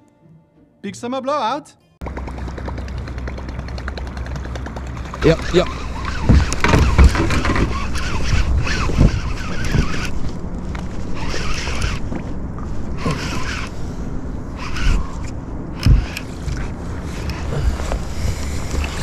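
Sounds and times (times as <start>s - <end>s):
wind rumbling on microphone: 2.0s - 19.0s
gear handling scrapes and rustles: 5.3s - 19.0s.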